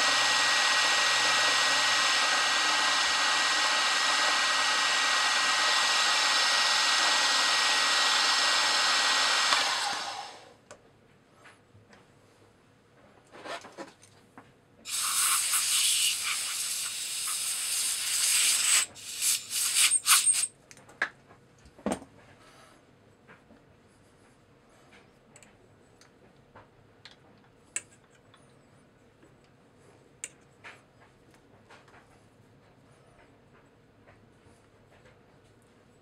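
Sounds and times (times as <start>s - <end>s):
milling machine cutting metal: 0.0s - 10.4s
high hissing noise: 14.9s - 20.5s.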